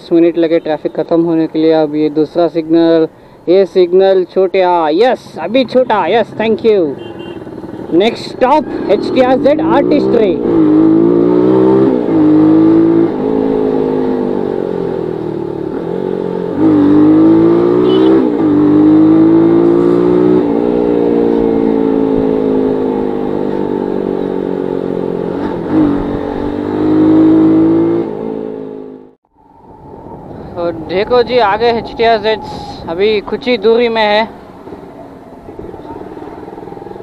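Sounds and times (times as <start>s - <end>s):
motorcycle engine shifting gears: 5.6s - 29.2s.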